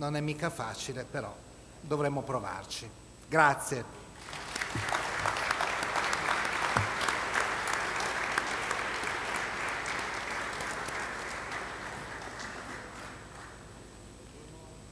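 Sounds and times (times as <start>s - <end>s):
audience applauding: 4.2s - 13.8s.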